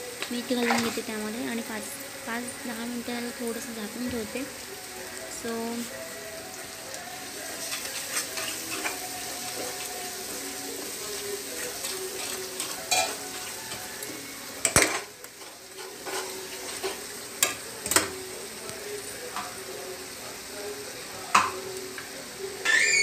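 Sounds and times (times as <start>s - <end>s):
masala sizzling in oil: 0.0s - 23.0s
steel spoon stirring and scraping: 7.6s - 10.0s, 10.7s - 18.1s
spoon knocking against pan: 21.3s - 21.6s.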